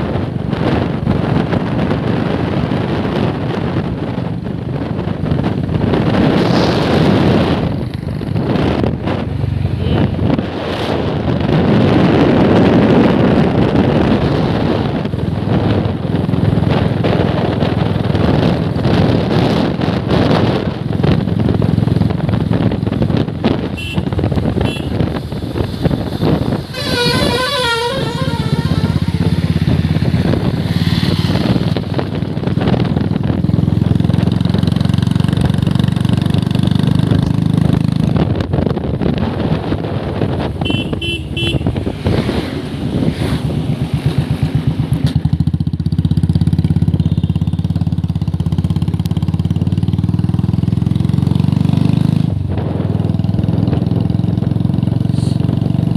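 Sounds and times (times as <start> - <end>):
wind on microphone: 0.0 - 47.0, 48.0 - 55.9
motorcycle engine running: 0.0 - 55.9
warbling horn: 26.7 - 29.7, 40.6 - 41.8.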